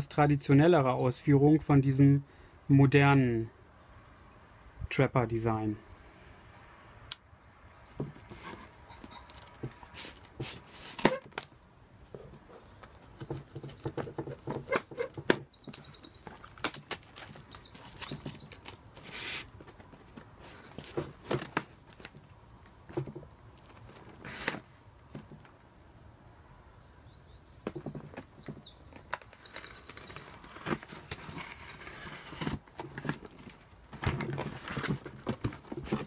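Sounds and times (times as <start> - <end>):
cardboard and tape rustling: 7.9 - 25.6, 27.6 - 36.0.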